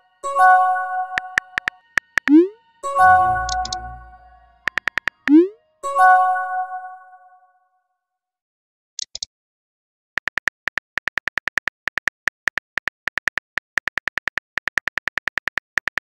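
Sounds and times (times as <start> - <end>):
keyboard key clicks: 10.2 - 16.0.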